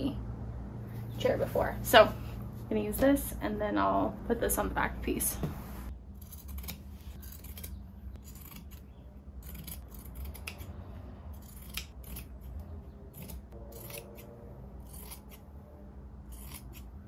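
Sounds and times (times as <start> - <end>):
scissors cutting fabric: 6.2 - 10.7, 11.3 - 15.4, 16.2 - 17.0.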